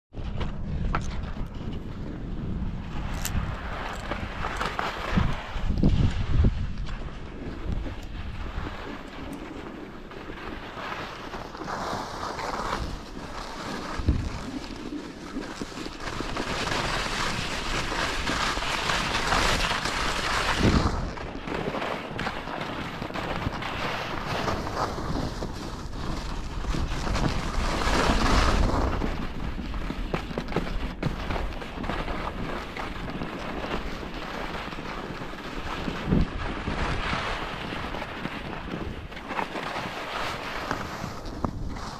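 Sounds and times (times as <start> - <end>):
wind buffeting microphone: 0.1 - 10.4, 12.7 - 41.9
skis scraping over snow: 0.2 - 41.9.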